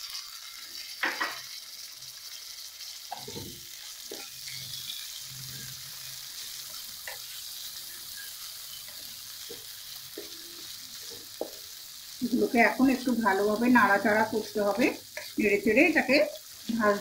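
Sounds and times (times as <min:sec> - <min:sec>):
vegetables sizzling in oil: 0:00.0 - 0:17.0
spatula scraping pan: 0:03.1 - 0:11.7, 0:13.4 - 0:17.0.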